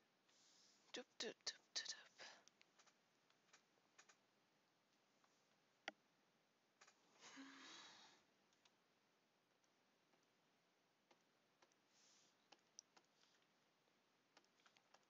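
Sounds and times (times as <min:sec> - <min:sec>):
soft breath-like noise: 0:00.3 - 0:00.9, 0:07.1 - 0:08.3, 0:11.9 - 0:12.5.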